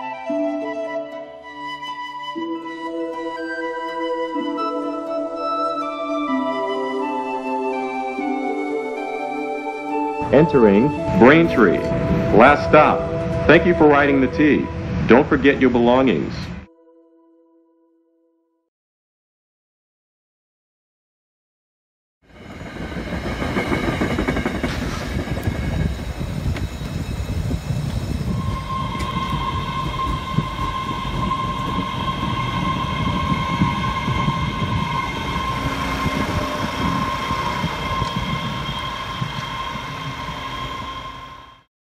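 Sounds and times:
subway train rumbling on rails: 0:02.3 - 0:16.6, 0:22.3 - 0:41.7
steady high whine: 0:22.4 - 0:41.7.

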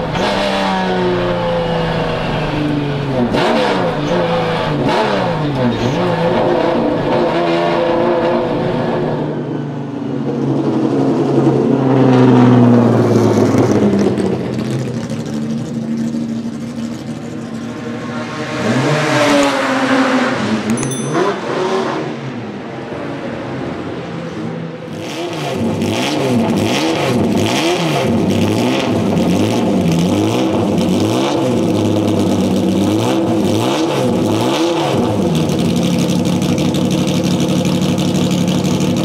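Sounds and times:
racing engine revving: 0:00.0 - 0:09.2, 0:17.0 - 0:23.3, 0:24.9 - 0:35.7.

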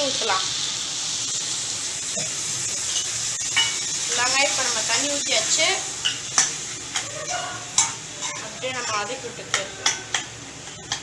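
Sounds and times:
food sizzling: 0:00.0 - 0:11.0
metal spatula scraping pan: 0:07.3 - 0:09.2.

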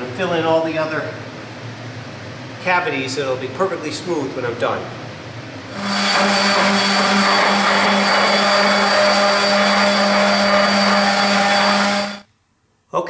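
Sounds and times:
orbit sander motor hum: 0:05.7 - 0:12.2
sanding hiss on wood: 0:05.7 - 0:12.2.

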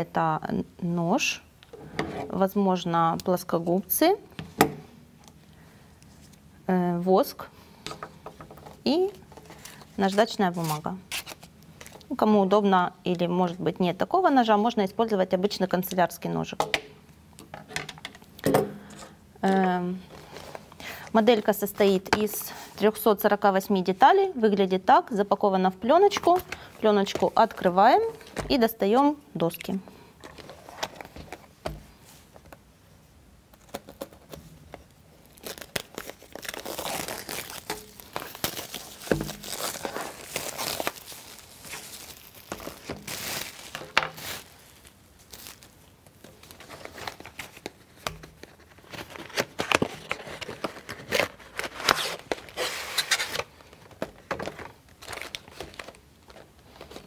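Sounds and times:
plastic film tearing and crinkling: 0:33.5 - 0:53.9, 0:54.6 - 0:57.0.

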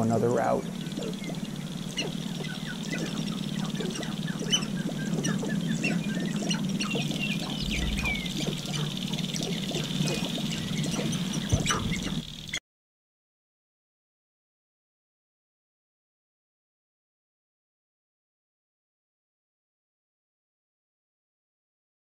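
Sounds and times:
grouse clucking and cackling: 0:00.0 - 0:12.6
steady low drone: 0:00.0 - 0:12.6.

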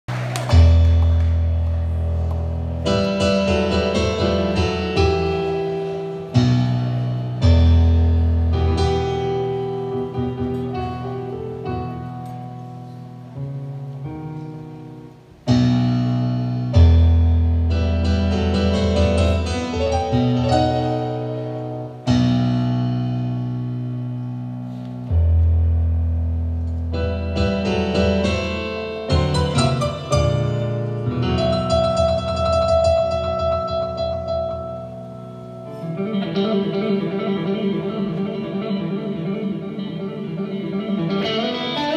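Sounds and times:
piano chords: 0:00.1 - 0:41.9
deep bass notes: 0:22.1 - 0:27.6.

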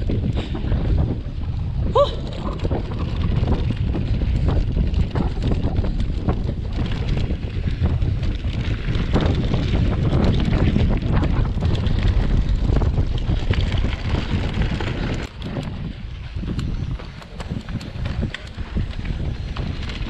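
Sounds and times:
small clicks from bike: 0:00.0 - 0:20.0
wind buffeting microphone: 0:00.0 - 0:20.0.

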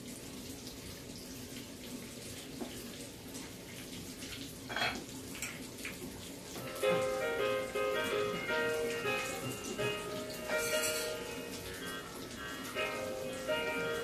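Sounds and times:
oil sizzling: 0:04.1 - 0:14.0.

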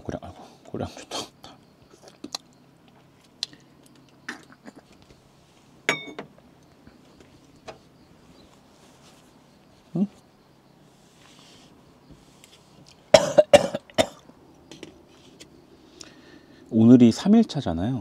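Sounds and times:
sharp ringing knock: 0:05.9 - 0:06.2.

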